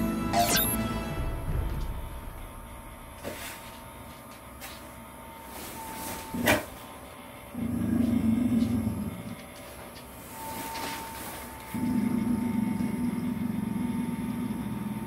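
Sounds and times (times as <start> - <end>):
short electronic beep: 0.3 - 0.9
low humming rumble: 1.1 - 4.6.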